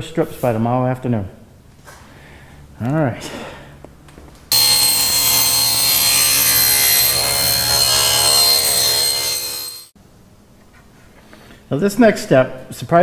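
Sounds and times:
table saw cutting: 4.5 - 10.0.

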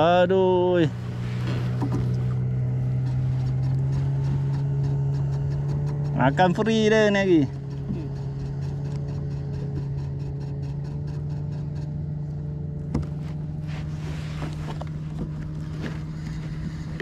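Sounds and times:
low motor hum: 0.0 - 17.0
light rapid ticking: 3.4 - 12.4.

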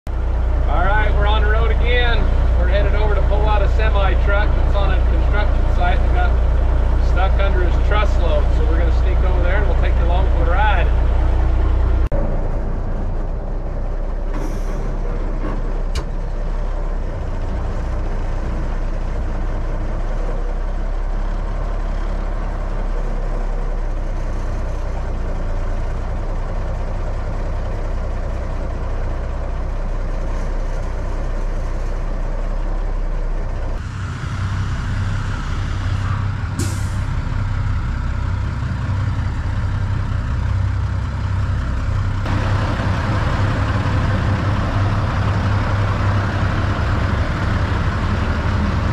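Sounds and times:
truck engine rumbling: 0.1 - 48.9
air brake hiss: 35.7 - 37.2.

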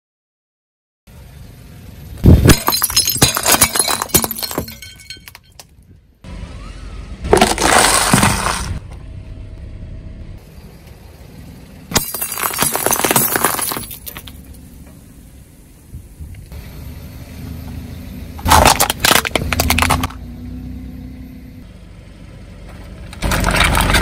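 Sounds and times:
ceramic plates shattering: 2.4 - 5.6, 12.0 - 14.2
pieces clinking on asphalt: 2.5 - 6.0, 7.3 - 8.8, 11.9 - 14.6, 18.4 - 20.2, 23.1 - 24.0
tyre crunching cardboard tube: 7.3 - 8.8.

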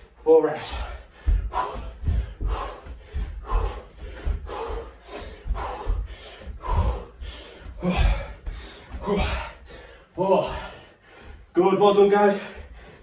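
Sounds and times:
man breathing hard: 0.0 - 11.6, 12.2 - 13.0
feet thudding on carpet: 1.1 - 9.5.

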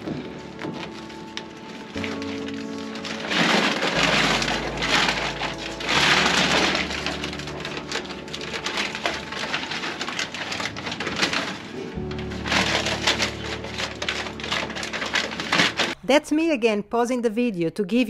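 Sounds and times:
foam panels rustling and crackling: 0.0 - 16.0.

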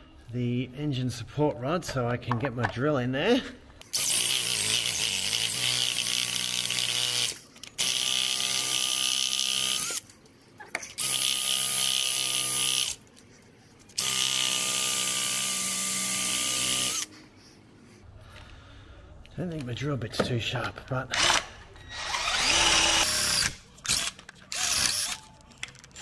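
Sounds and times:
power drill running: 11.0 - 13.0, 14.0 - 17.1, 21.2 - 25.2.

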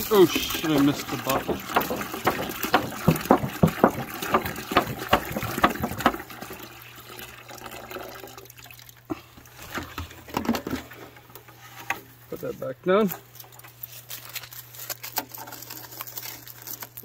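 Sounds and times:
sap dripping into plastic jug: 0.0 - 11.5.

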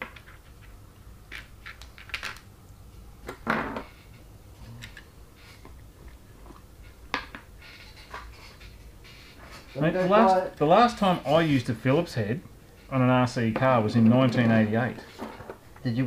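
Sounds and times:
plastic parts clicking and rustling: 1.3 - 2.5.

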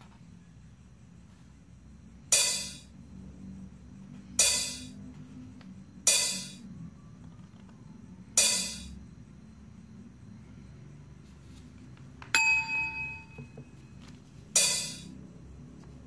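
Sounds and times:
short sharp hits: 2.3 - 2.9, 4.4 - 5.0, 6.1 - 6.6, 8.4 - 8.9, 14.6 - 15.1.

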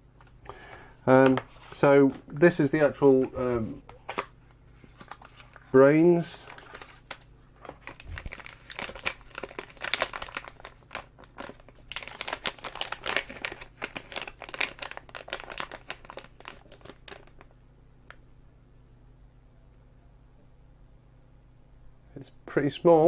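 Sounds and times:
foil bag crinkling: 4.9 - 17.6.

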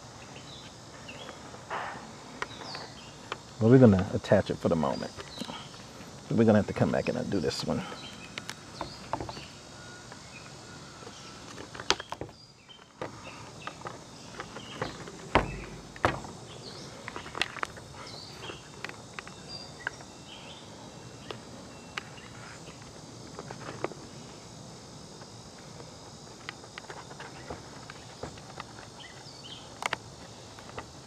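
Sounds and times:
heavy thud: 15.3 - 16.4.

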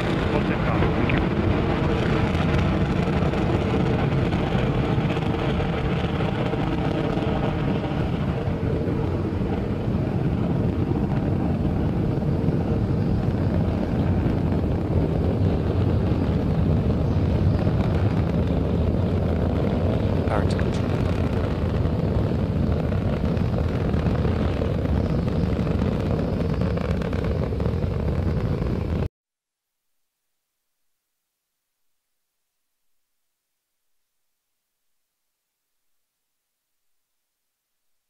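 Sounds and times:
rocket engines rumbling: 0.0 - 29.1
rocket exhaust hiss: 0.0 - 29.1.

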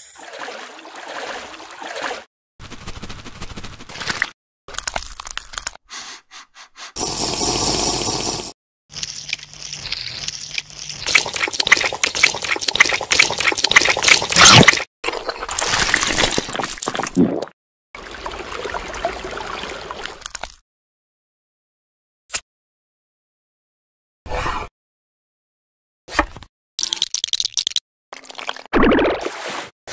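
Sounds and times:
wet watery noise: 0.0 - 2.3, 7.0 - 20.6.

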